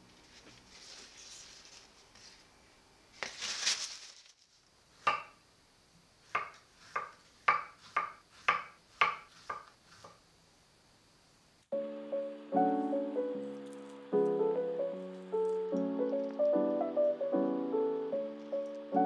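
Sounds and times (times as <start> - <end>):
brief rustle: 3.2 - 4.7
knife tapping cutting board: 5.1 - 5.4, 6.4 - 10.2.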